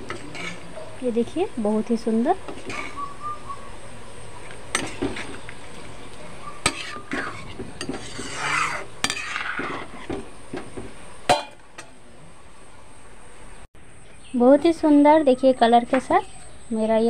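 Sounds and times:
ladle scraping metal pan: 6.6 - 10.2.

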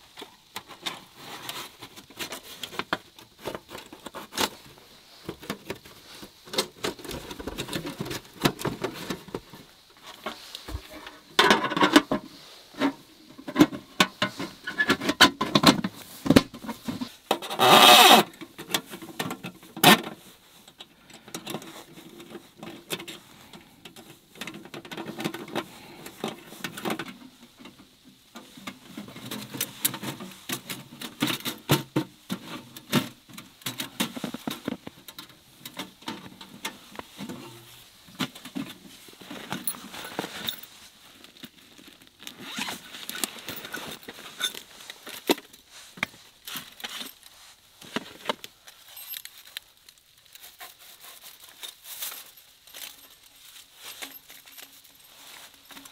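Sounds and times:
clothing rustling: 35.5 - 55.9.

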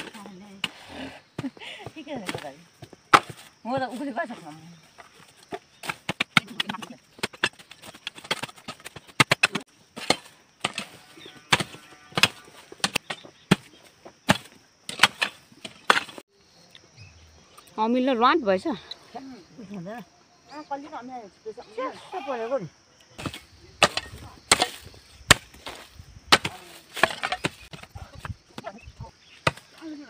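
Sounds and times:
hoe chopping into ground: 3.1 - 3.5, 5.8 - 16.2, 23.2 - 28.0.

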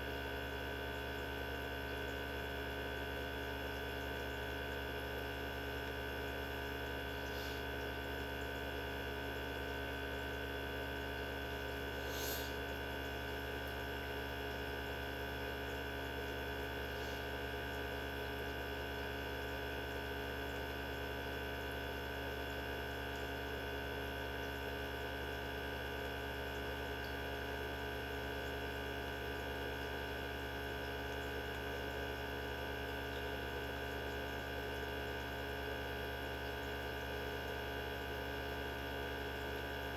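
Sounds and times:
centrifuge motor humming: 6.2 - 19.9.

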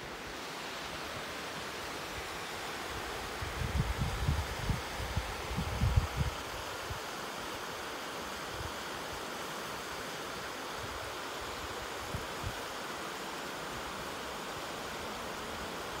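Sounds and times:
small waterfall rushing: 0.0 - 16.0.

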